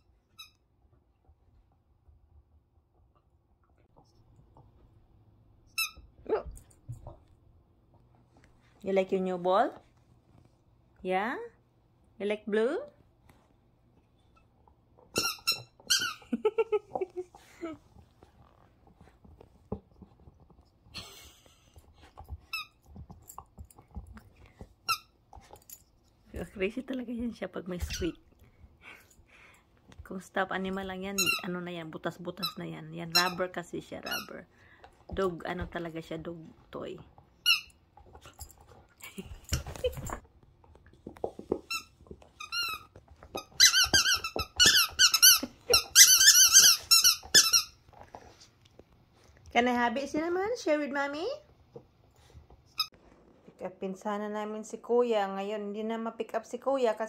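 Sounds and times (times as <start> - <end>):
squeaky toy squeaks: 5.7 - 6.1, 15.1 - 16.2, 31.2 - 31.5, 34.0 - 34.4, 37.4 - 37.8, 41.7 - 47.8.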